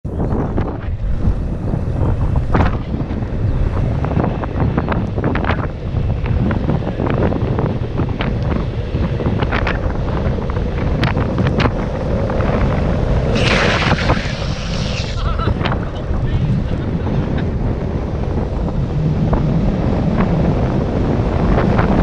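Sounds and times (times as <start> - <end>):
wind buffeting microphone: 0.0 - 22.0
skateboard wheels rolling on asphalt: 0.1 - 22.0
wheels screeching sliding sideways: 7.6 - 18.3.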